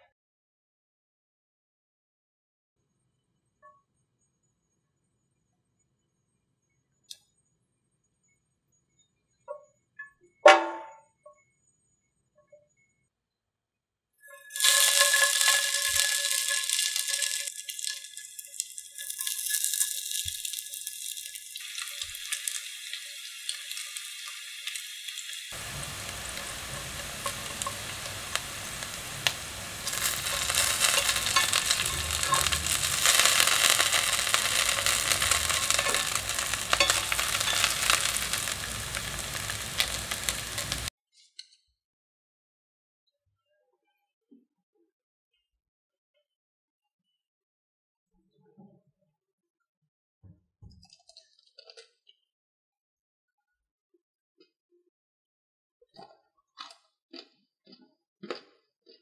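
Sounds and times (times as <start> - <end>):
patties sizzling in oil: 14.2 - 40.9.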